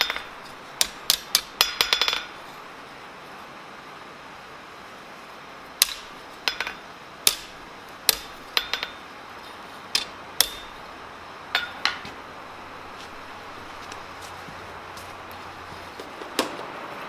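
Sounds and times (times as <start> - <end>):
hammer striking metal on anvil: 0.0 - 2.4, 5.8 - 9.0, 10.0 - 10.8, 11.5 - 12.1.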